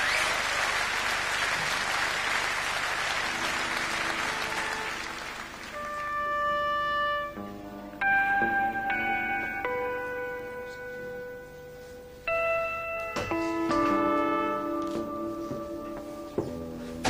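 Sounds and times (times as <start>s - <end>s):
audience applause: 0.0s - 6.5s
electric guitar held notes: 3.2s - 17.0s.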